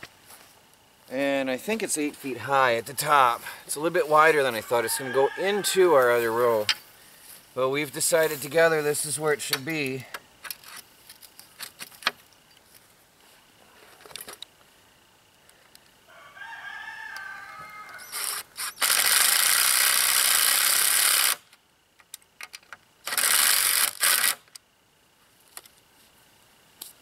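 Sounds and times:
cordless drill whirring: 0:18.0 - 0:21.4.

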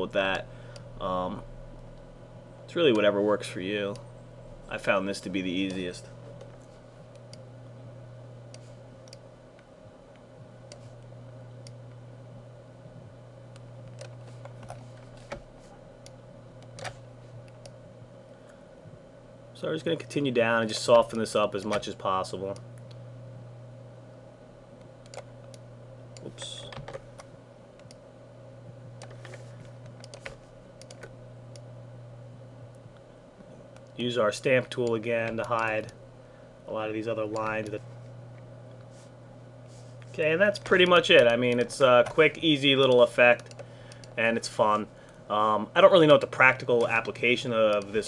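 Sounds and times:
low electrical hum: 0:00.0 - 0:48.0
computer mouse clicking: 0:08.5 - 0:09.2, 0:13.5 - 0:15.4, 0:25.0 - 0:25.6, 0:29.0 - 0:31.6, 0:42.8 - 0:44.1.

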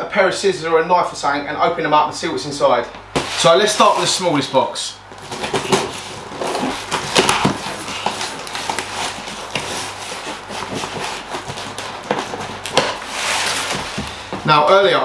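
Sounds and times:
cardboard tearing and rustling: 0:03.2 - 0:04.5, 0:05.1 - 0:15.0.

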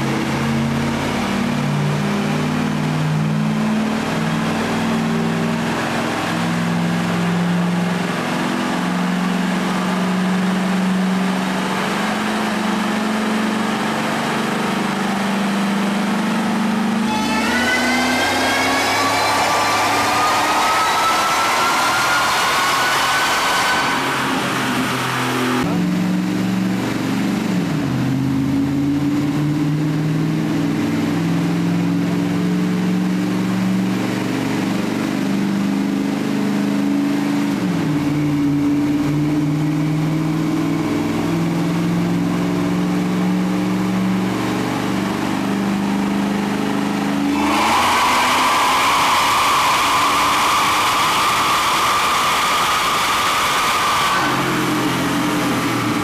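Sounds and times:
supercharged engine revving: 0:00.0 - 0:56.0
loud high whine with hiss: 0:17.0 - 0:25.7, 0:47.2 - 0:56.0.

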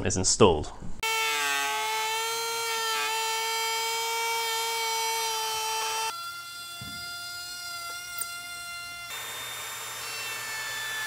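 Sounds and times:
wood router whining: 0:01.0 - 0:11.0.

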